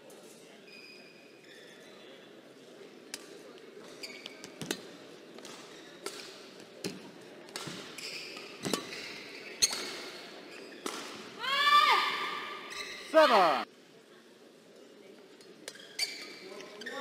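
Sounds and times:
shoes squeaking on court: 0.3s - 2.2s, 3.8s - 11.3s, 12.6s - 13.2s, 15.5s - 17.0s
rackets hitting shuttlecock: 4.2s - 11.4s.

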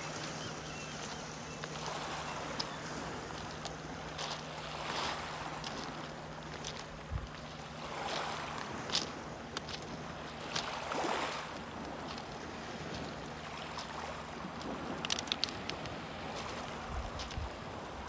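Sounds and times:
waves lapping on rocky beach: 0.0s - 18.0s
stones clicking: 14.6s - 16.6s.

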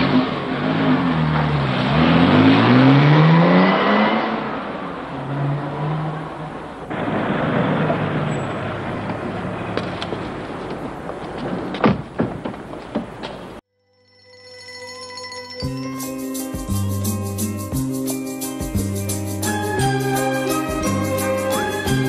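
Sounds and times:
car engine revving: 0.0s - 11.4s.

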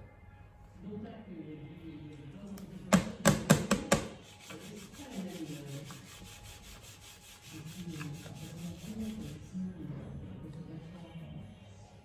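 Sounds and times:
cream smoothing rubbing and scraping: 4.1s - 10.0s.

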